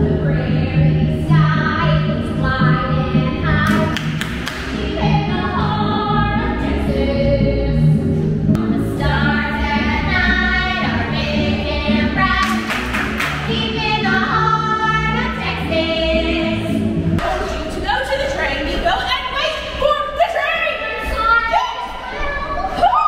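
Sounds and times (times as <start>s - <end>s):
voices singing together: 0.0s - 17.6s.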